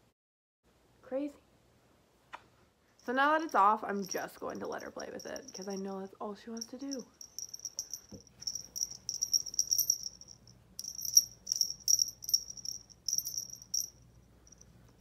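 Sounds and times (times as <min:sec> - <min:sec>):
small bell jingling: 0:03.0 - 0:06.0, 0:06.6 - 0:15.0.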